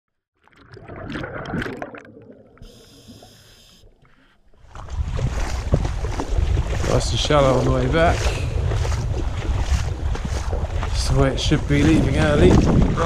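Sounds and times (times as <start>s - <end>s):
shallow water splashing and gurgling: 0.4s - 13.0s
wind rumble on microphone: 4.6s - 13.0s.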